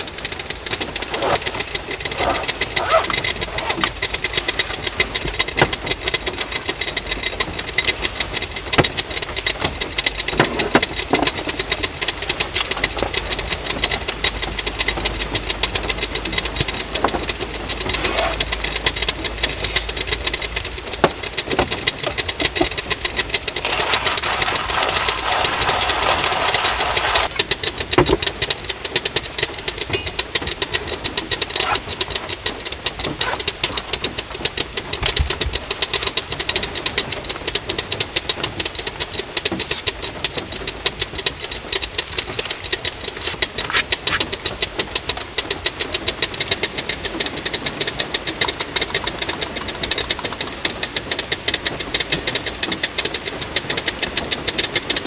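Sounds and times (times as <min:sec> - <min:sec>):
heavy rain on a car roof: 0:00.0 - 0:49.2, 0:49.8 - 0:55.0
loud rustling burst: 0:23.4 - 0:27.3.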